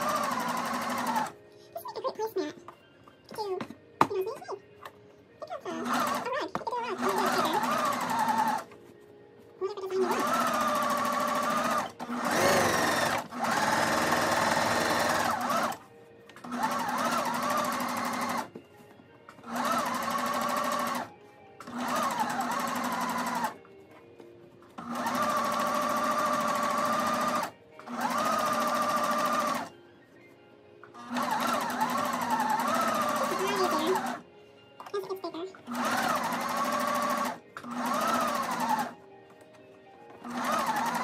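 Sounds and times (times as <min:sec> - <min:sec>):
electric sewing machine stitching: 0:00.0 - 0:01.4, 0:05.7 - 0:08.7, 0:10.0 - 0:15.8, 0:16.4 - 0:18.5, 0:19.4 - 0:23.6, 0:24.8 - 0:29.7, 0:30.9 - 0:34.2, 0:35.6 - 0:39.0, 0:40.2 - 0:41.0.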